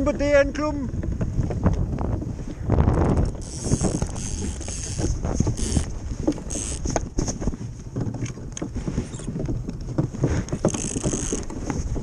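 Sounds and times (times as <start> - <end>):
ice boat runners rumbling over ice: 0.0 - 12.0
ice ticks and crackles: 3.0 - 12.0.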